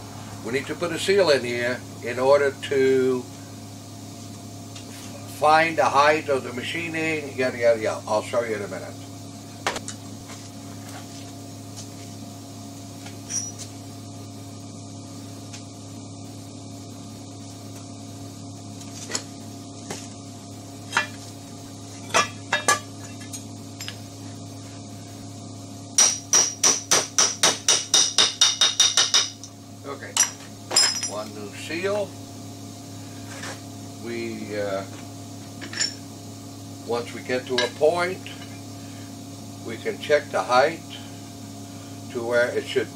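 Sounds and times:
steady low hum: 0:00.0 - 0:42.9
hammer tapping on metal: 0:26.0 - 0:29.5
metal parts clinking on workbench: 0:30.2 - 0:31.2.

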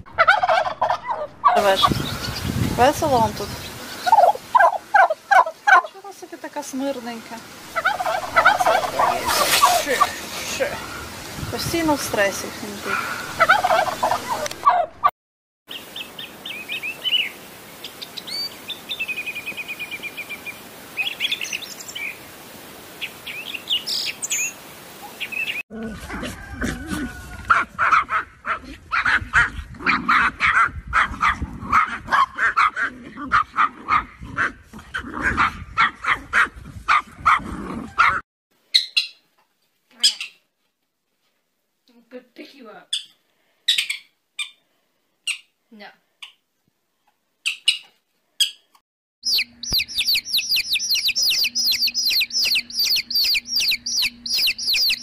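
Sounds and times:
small birds chirping: 0:01.4 - 0:06.2, 0:15.7 - 0:22.4, 0:23.0 - 0:25.6, 0:47.4 - 0:55.0
small dogs yapping: 0:07.7 - 0:10.2, 0:12.9 - 0:15.1, 0:25.7 - 0:38.2.

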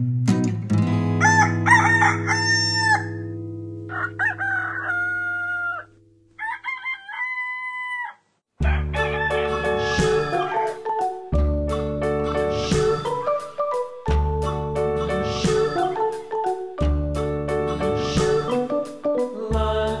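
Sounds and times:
music: 0:00.0 - 0:05.0, 0:08.6 - 0:20.0
rooster crowing: 0:01.2 - 0:03.2, 0:03.9 - 0:10.9.

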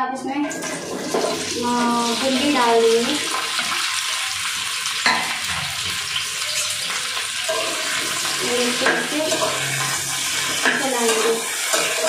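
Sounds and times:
okra sizzling in oil: 0:00.6 - 0:12.0
spatula stirring and scraping: 0:06.6 - 0:12.0.

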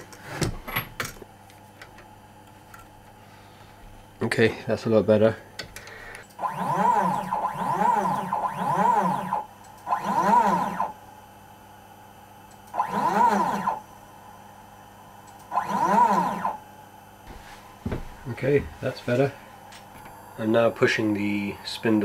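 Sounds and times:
faint steady hum: 0:00.0 - 0:22.0
stepper motor whine: 0:06.2 - 0:11.1, 0:12.7 - 0:22.0.

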